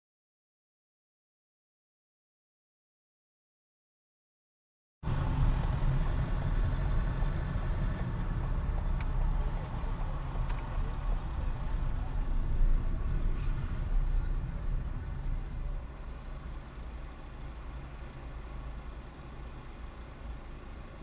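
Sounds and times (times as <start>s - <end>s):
car engine and road rumble: 5.0s - 21.0s.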